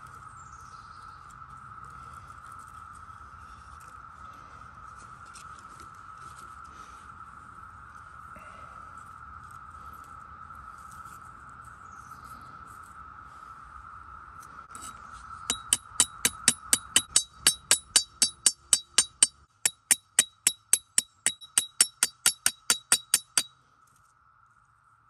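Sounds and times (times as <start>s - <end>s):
insect drone: 0.0s - 17.0s
machete striking stone: 15.5s - 23.5s.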